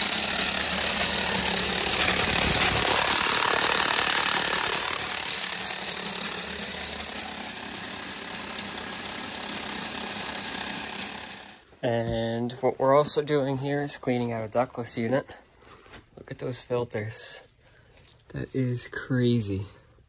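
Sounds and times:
rotary hammer drilling into masonry: 0.0 - 11.7.

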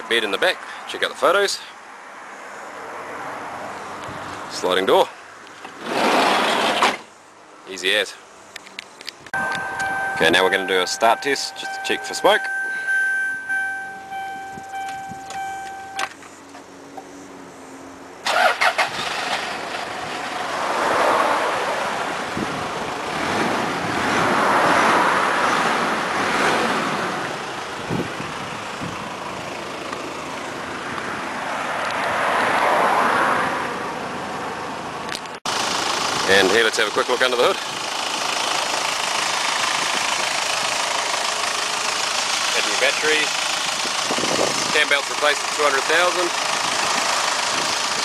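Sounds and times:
diesel engine starting and idling: 9.4 - 16.1, 18.2 - 24.2, 35.5 - 48.0
steady warning tone: 9.4 - 16.1.

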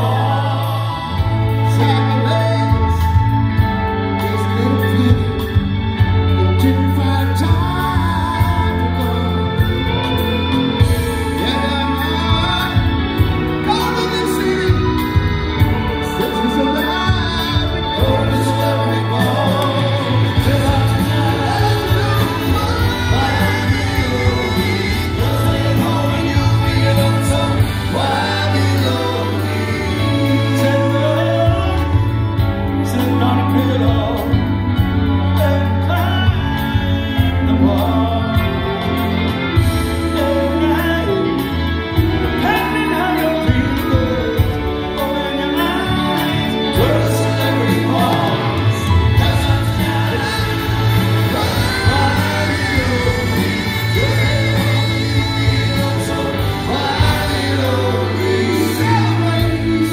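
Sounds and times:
bass line of long held notes: 0.0 - 59.9
keyboards: 0.0 - 59.9
man singing into a microphone: 0.0 - 59.9.

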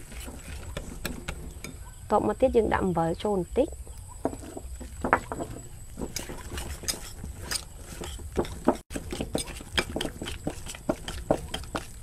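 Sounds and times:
whisk scraping glass bowl: 5.2 - 12.0.

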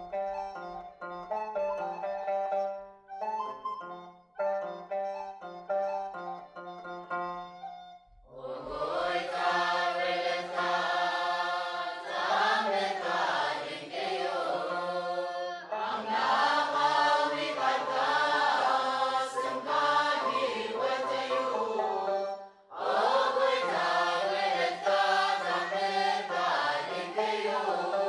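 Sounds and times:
choir singing a hymn: 8.3 - 28.0.

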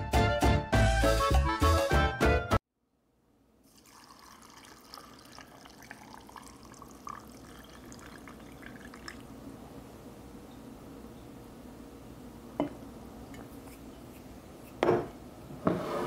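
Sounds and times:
liquid trickling into jars: 3.6 - 9.4
small drips and splashes: 3.7 - 9.3.

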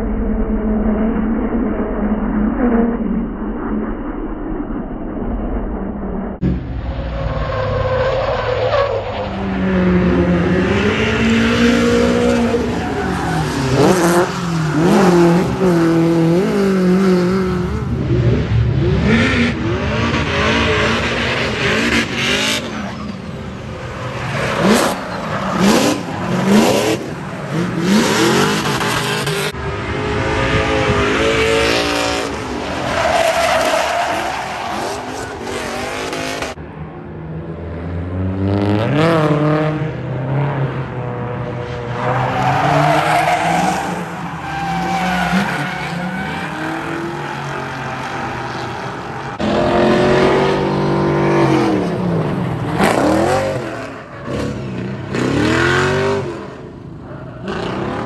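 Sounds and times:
car engines revving: 5.5 - 58.0.

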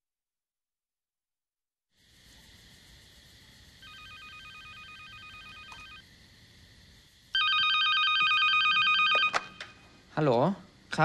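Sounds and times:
low steady hiss: 2.0 - 11.0
telephone ringing with warbling trill: 3.8 - 6.0, 7.4 - 9.7.

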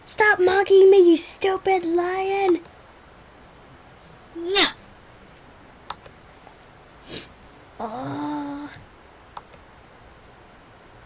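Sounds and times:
small clicks: 5.4 - 6.2, 9.4 - 9.7
breathy hiss: 6.3 - 8.8
held vocal tone: 7.8 - 8.8.

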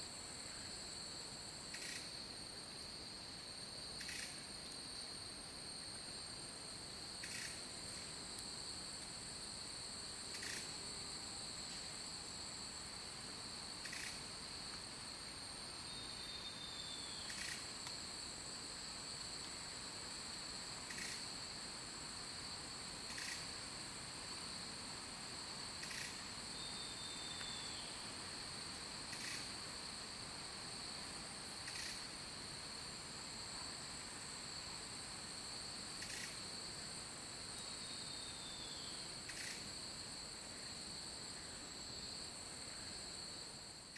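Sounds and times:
insects droning: 0.0 - 43.9.

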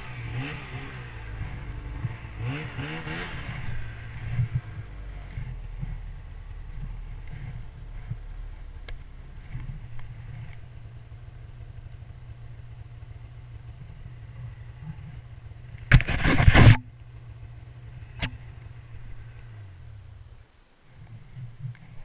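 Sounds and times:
snowmobile engine droning: 0.0 - 22.0
sled scraping tree branch: 15.9 - 16.9.

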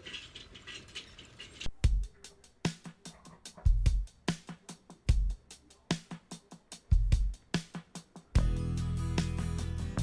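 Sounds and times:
low kick drum: 1.8 - 2.2, 3.6 - 4.1, 6.9 - 7.4, 8.4 - 8.8.

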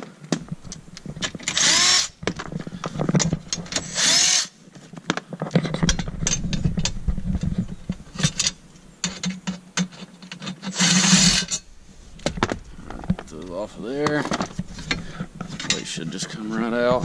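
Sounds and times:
cordless driver motor whirring: 1.5 - 2.2.

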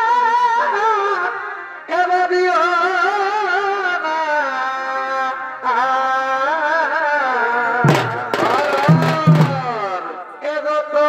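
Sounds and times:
drum strikes: 7.8 - 10.0.

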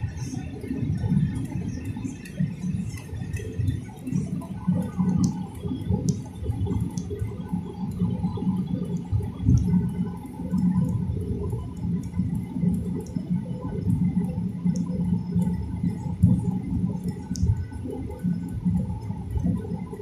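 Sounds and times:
faint hum: 0.0 - 20.0
jet engines low rumble: 0.0 - 20.0
small clicks: 17.1 - 17.6.

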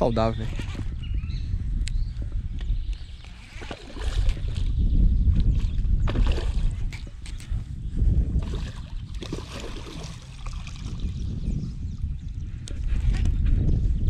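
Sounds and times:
wind rumbling on microphone: 0.0 - 14.0
water splashing: 3.5 - 4.7, 6.1 - 7.1, 8.4 - 11.2.

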